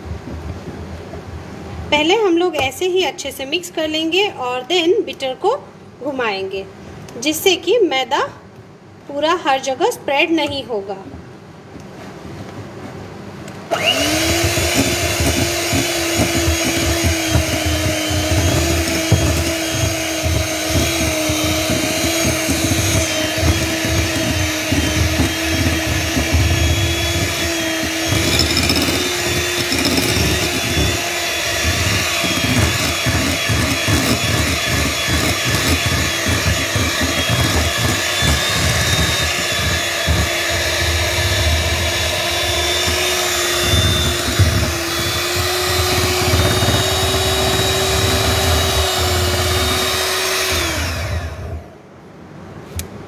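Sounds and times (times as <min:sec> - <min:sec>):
mixer beaters churning and rattling: 0:13.7 - 0:51.6
electric hand mixer whining: 0:13.7 - 0:51.8.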